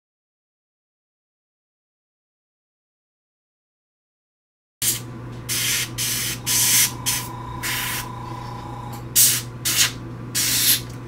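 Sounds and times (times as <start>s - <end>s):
airbrush spraying bursts: 4.8s - 10.8s
steady low hum: 4.8s - 11.0s.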